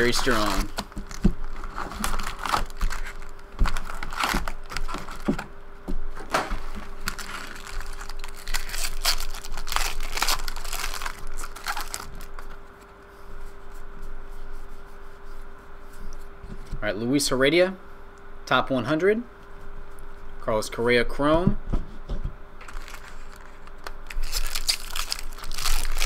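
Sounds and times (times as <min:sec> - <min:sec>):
foil wrappers crinkling and tearing: 0:00.0 - 0:05.5, 0:06.3 - 0:12.7, 0:22.6 - 0:26.0.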